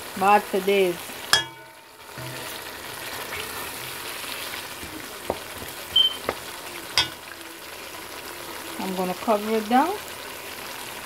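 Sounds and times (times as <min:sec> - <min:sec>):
curry sizzling in oil: 0:00.0 - 0:11.0
metal spoon clinking on pan: 0:01.3 - 0:04.0, 0:07.0 - 0:07.3.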